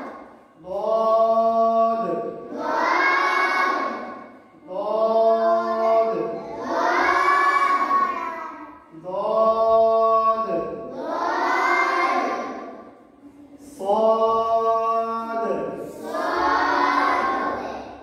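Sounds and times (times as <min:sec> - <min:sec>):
children chanting in unison: 0:00.0 - 0:18.0
person chanting: 0:08.9 - 0:12.6.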